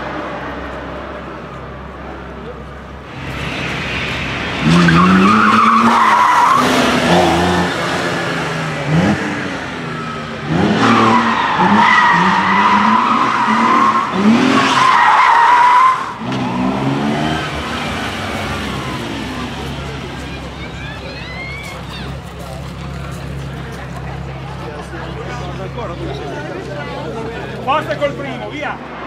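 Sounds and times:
car engine revving hard: 0:03.1 - 0:20.6
tyres squealing: 0:04.6 - 0:07.7, 0:09.9 - 0:24.4.

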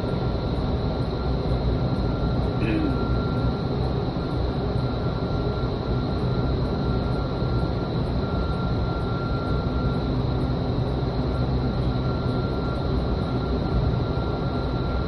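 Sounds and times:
wind tunnel fans and airflow: 0:00.0 - 0:15.0
high whine: 0:02.6 - 0:03.4.

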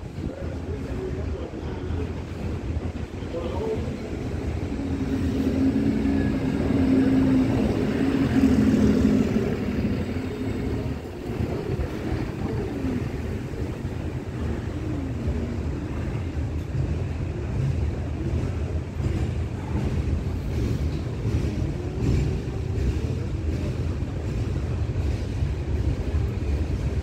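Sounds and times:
steady low rumble: 0:00.0 - 0:27.0
city bus driving past: 0:03.3 - 0:19.0.

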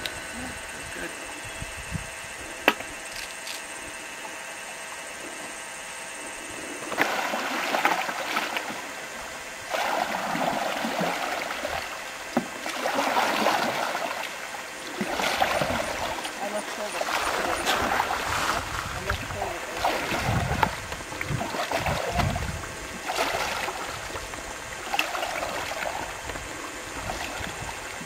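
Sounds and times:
paddles splashing through water: 0:06.8 - 0:09.0, 0:09.6 - 0:28.0.

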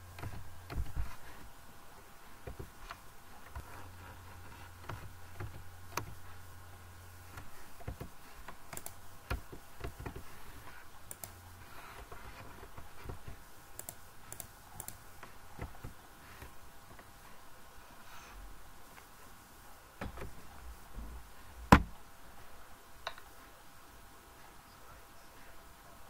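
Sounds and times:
low steady hum: 0:00.0 - 0:26.0
keyboard and mouse clicking: 0:07.3 - 0:10.2, 0:11.1 - 0:16.6.

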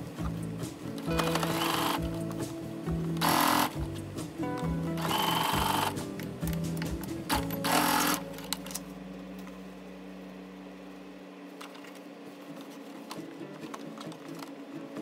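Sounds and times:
low steady hum: 0:00.0 - 0:15.0
sewing machine stitching: 0:01.1 - 0:02.2, 0:03.2 - 0:03.8, 0:05.0 - 0:06.0, 0:07.3 - 0:08.2.

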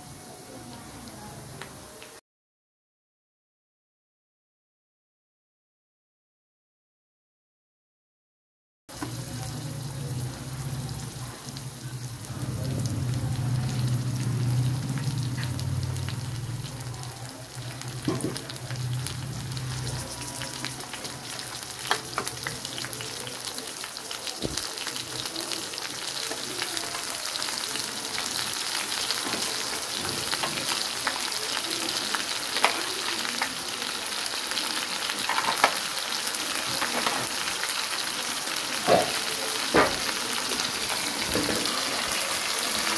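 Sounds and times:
meat sizzling in hot oil: 0:08.9 - 0:42.9.

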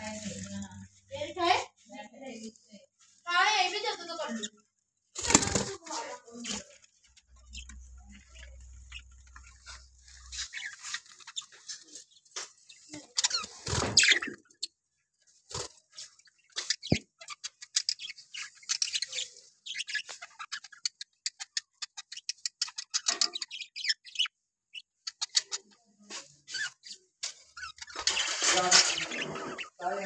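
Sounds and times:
budgerigars chirping and chattering: 0:05.2 - 0:14.8, 0:15.5 - 0:30.0.

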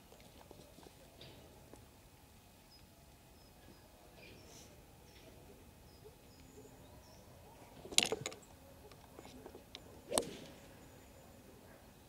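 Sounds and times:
faint bird chirps: 0:02.6 - 0:07.7
golf club striking ball: 0:10.1 - 0:10.6.

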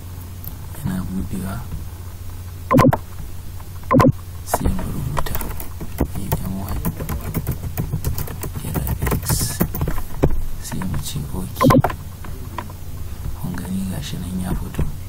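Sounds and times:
steady low hum: 0:00.0 - 0:15.0
keyboard typing: 0:03.9 - 0:04.1, 0:05.2 - 0:10.0, 0:11.6 - 0:12.0.

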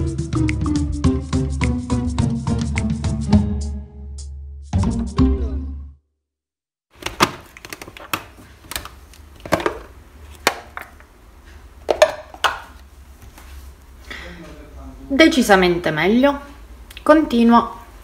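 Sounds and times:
plastic lid clicks and knocks: 0:07.0 - 0:11.0, 0:11.9 - 0:12.7.

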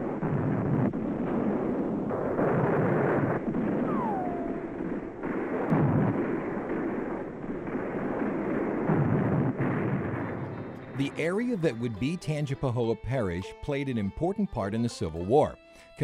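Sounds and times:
cannon and gunfire: 0:00.0 - 0:11.9
short falling whistle: 0:03.9 - 0:04.6.

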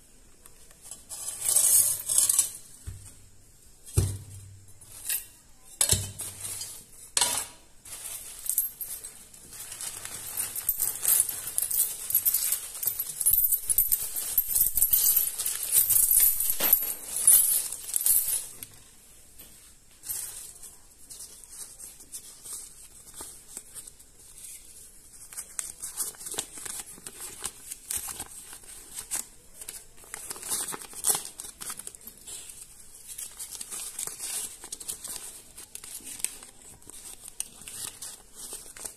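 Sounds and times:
coins clinking: 0:01.1 - 0:02.6, 0:06.0 - 0:18.6
paper banknotes rustling: 0:07.8 - 0:18.6, 0:20.1 - 0:38.9.

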